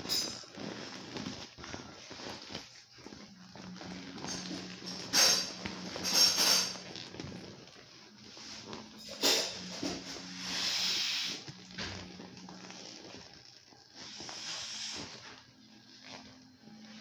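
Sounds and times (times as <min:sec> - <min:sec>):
air hissing out of a beach ball: 0:09.3 - 0:11.6, 0:13.9 - 0:15.4.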